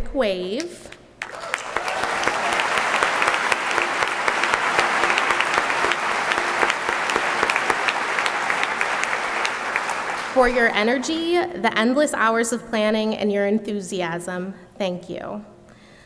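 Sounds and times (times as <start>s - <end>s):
audience applauding: 1.2s - 11.5s.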